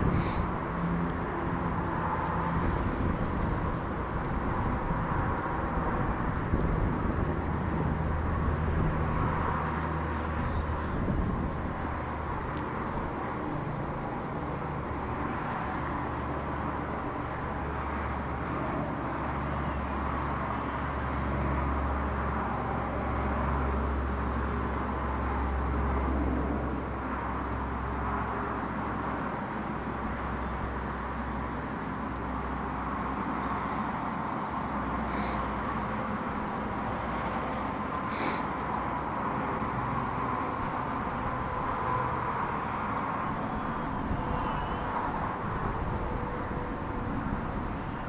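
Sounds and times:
wind buffeting microphone: 0:00.0 - 0:14.9.

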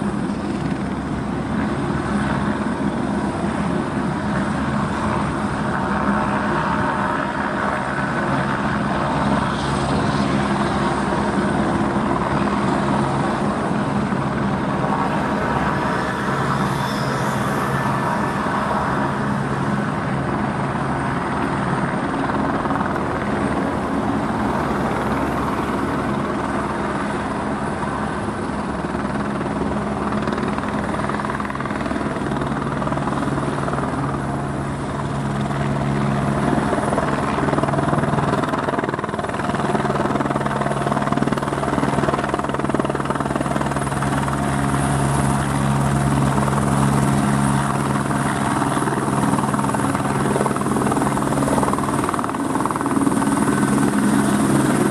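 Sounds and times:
helicopter hovering: 0:00.0 - 0:54.9.

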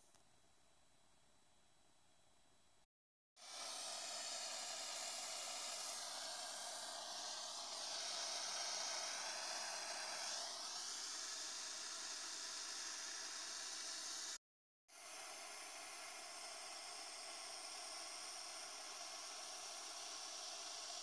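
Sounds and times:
gas torch hissing: 0:03.4 - 0:21.0.

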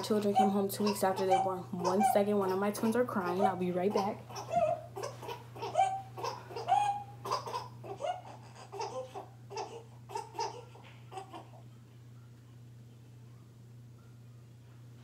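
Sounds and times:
baby crying: 0:00.0 - 0:11.6.

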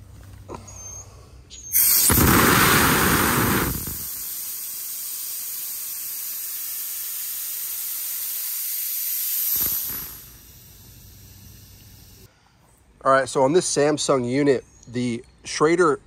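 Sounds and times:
gas venting hiss: 0:01.7 - 0:12.3.

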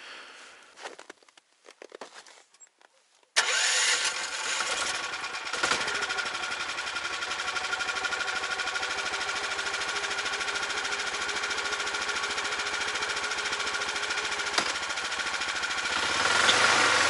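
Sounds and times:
snowmobile engine idling: 0:04.4 - 0:17.0.

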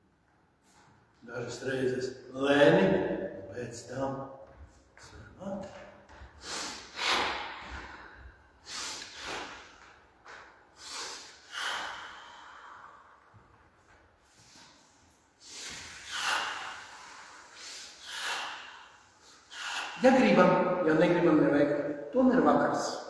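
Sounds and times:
man breathing: 0:06.1 - 0:20.1.

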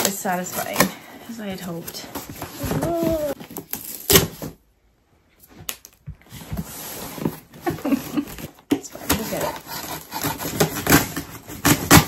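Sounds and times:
cardboard box scraping and rustling: 0:06.3 - 0:08.4.

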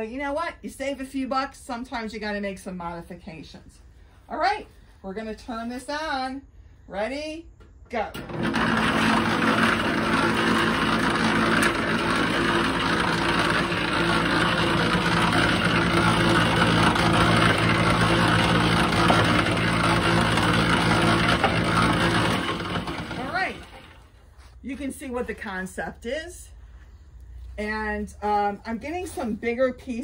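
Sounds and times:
motor humming: 0:08.2 - 0:24.1.

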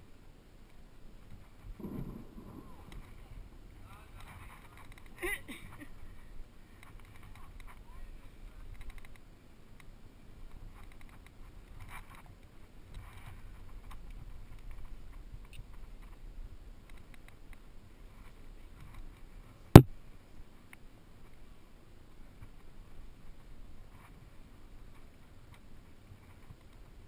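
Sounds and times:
low steady rumble: 0:01.7 - 0:04.1.

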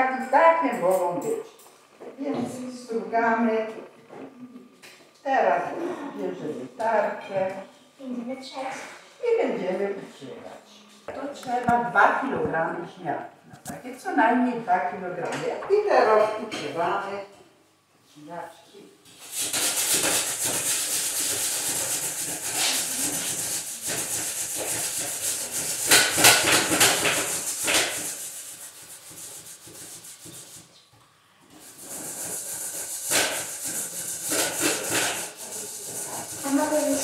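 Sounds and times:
potatoes grated on a grater: 0:19.1 - 0:30.8, 0:31.5 - 0:37.0.

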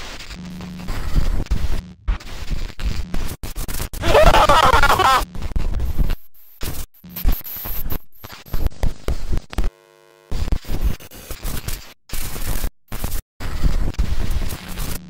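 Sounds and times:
tape static hiss and crackle: 0:09.5 - 0:10.5.

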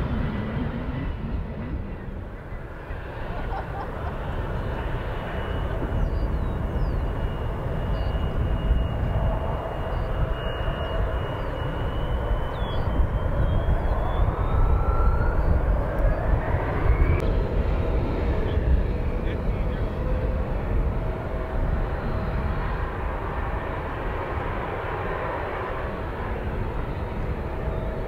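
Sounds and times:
whine rising in pitch: 0:00.0 - 0:17.5
engine whine: 0:00.0 - 0:28.0
jet engines roaring: 0:00.0 - 0:28.0.

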